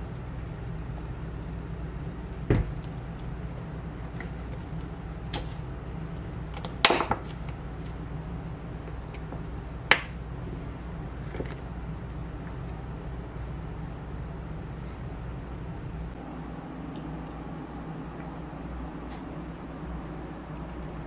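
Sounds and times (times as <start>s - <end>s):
low hum: 0.0s - 21.0s
dull thump: 2.5s - 2.8s.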